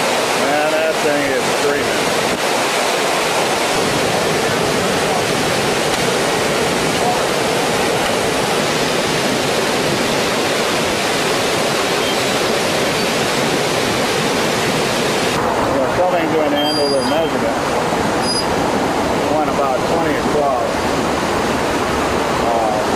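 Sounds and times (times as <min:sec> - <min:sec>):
floodwater rushing roar: 0:00.0 - 0:22.9.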